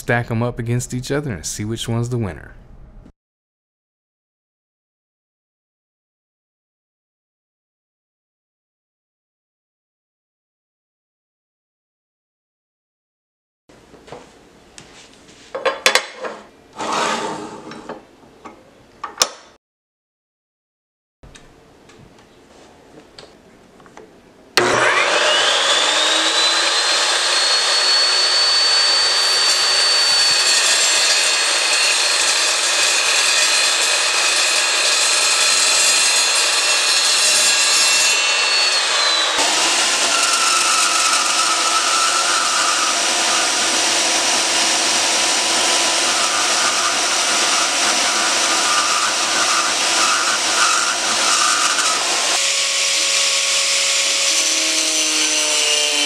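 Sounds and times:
angle grinder: 16.8 - 17.6, 24.6 - 56.0
band saw cutting metal: 16.8 - 17.7, 24.6 - 56.0
chop saw cutting steel: 24.6 - 56.0.

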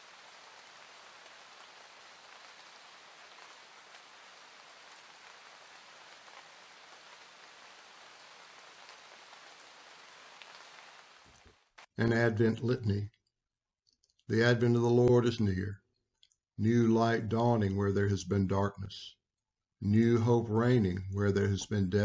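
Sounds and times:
faint steady hiss: 0.0 - 13.1.

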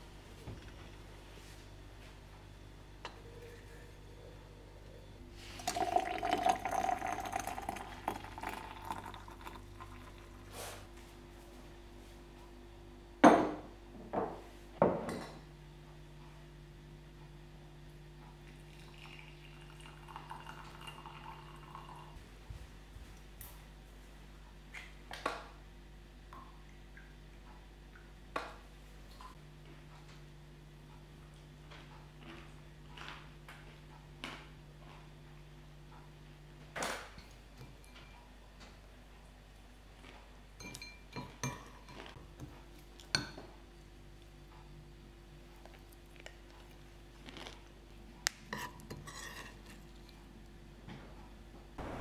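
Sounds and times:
water pouring into teapot: 5.4 - 10.5, 18.5 - 22.2
crockery knocking and clinking: 13.2 - 15.4.

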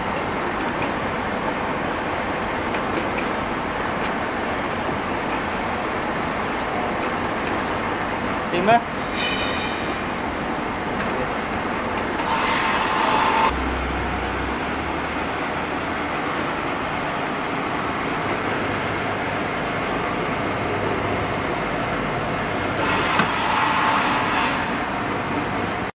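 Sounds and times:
machine whining bursts: 12.2 - 15.4.

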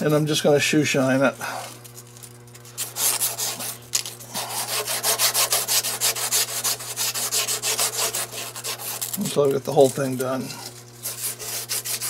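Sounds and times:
emery cloth rasping on steel: 2.8 - 12.0.

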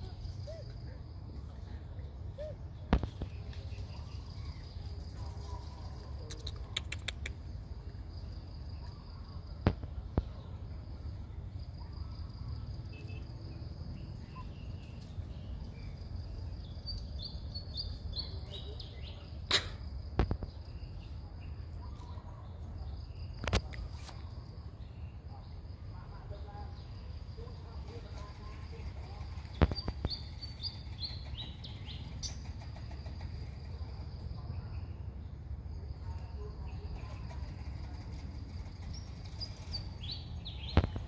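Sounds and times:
sharp clicks: 6.3 - 7.4.

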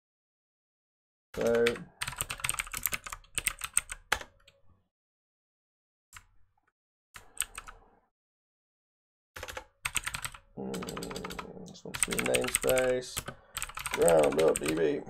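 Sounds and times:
typing on keyboard: 1.4 - 4.6, 7.2 - 7.8, 9.4 - 15.0.

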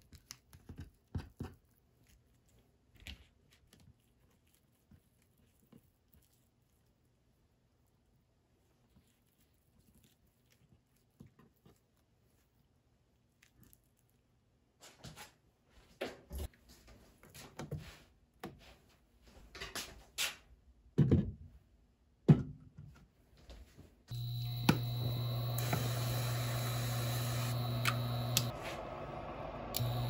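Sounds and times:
induction cooktop hum and fan: 24.1 - 30.0.

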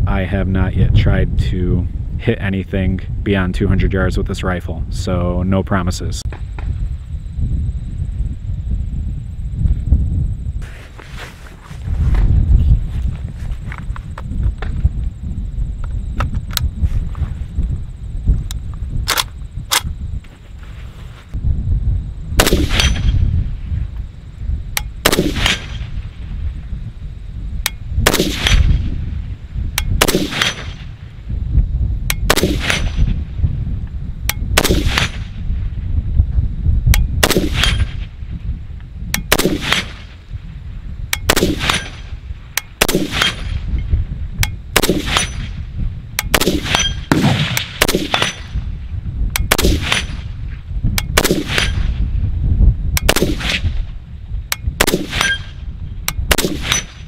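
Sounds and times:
rifle shots: 22.4 - 23.2, 25.0 - 25.9, 28.0 - 28.8, 30.0 - 30.9, 32.2 - 33.0, 34.6 - 35.3, 37.2 - 38.0, 39.3 - 40.2, 41.3 - 42.1, 42.8 - 43.6, 44.8 - 45.6, 46.3 - 48.6, 49.4 - 50.3, 51.2 - 51.9, 53.0 - 53.7, 54.8 - 55.5, 56.3 - 57.0.

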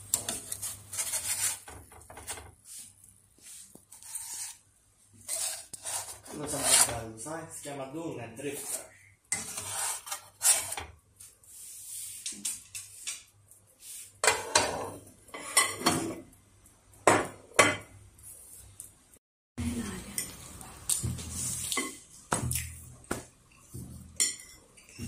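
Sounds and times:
spatula scraping frying pan: 0.0 - 2.9, 3.8 - 4.6, 5.2 - 7.0, 8.5 - 10.9, 14.2 - 16.2.

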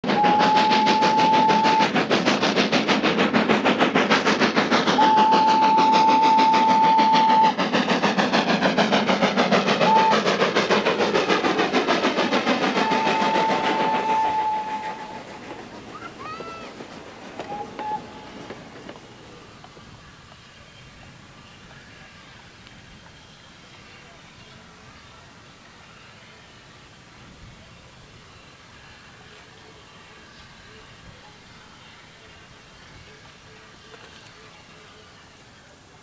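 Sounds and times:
steam whistle blasts: 0.0 - 2.0, 5.0 - 7.6, 9.8 - 10.6, 12.7 - 15.4, 17.4 - 18.6
steam locomotive chuffing: 0.0 - 36.0.

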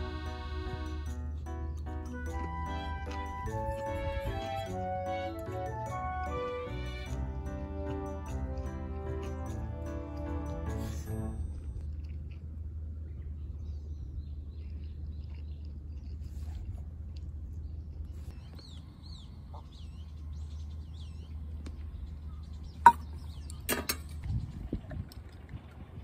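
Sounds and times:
small birds chirping: 13.0 - 24.8.

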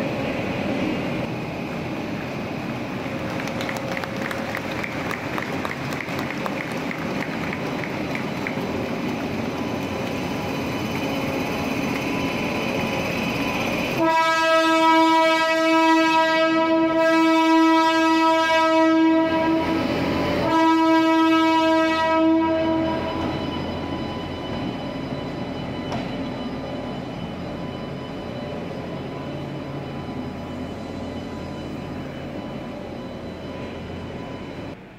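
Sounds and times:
locomotive air horn blasts: 14.0 - 23.1.

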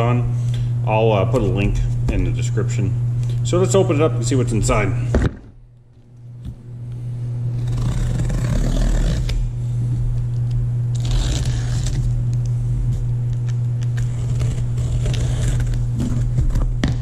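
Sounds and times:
steady low hum: 0.0 - 17.0
knife slicing packing tape: 7.6 - 9.4, 10.9 - 12.2, 13.3 - 17.0.

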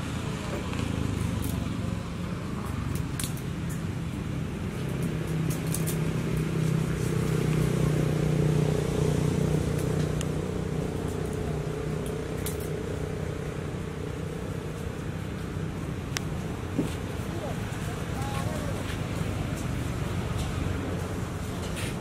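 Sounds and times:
vehicle engine passing: 4.1 - 22.0.

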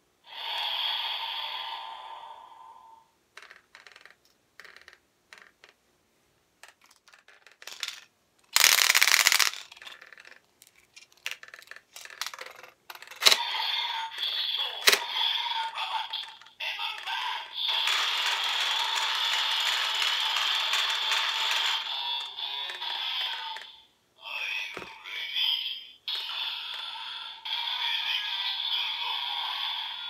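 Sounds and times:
plastic toy parts clicking and rattling: 6.6 - 23.7
toy belt electronic sound effects: 7.6 - 10.4, 11.2 - 23.8.

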